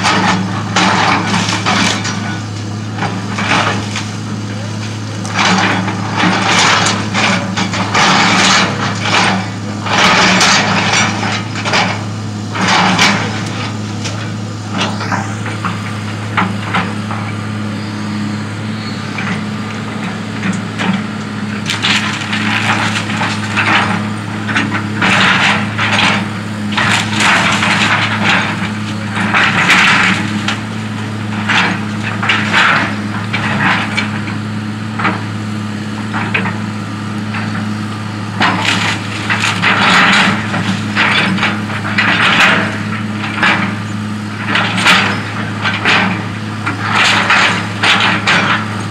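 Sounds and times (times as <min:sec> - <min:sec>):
excavator diesel engine running: 0:00.0 - 0:48.9
timber cracking and splintering: 0:21.6 - 0:34.0, 0:38.4 - 0:43.8.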